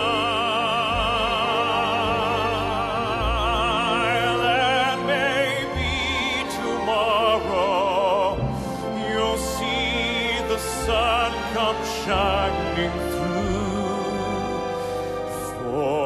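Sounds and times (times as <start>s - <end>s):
man singing baritone: 0.0s - 16.0s
symphony orchestra and piano: 0.0s - 16.0s.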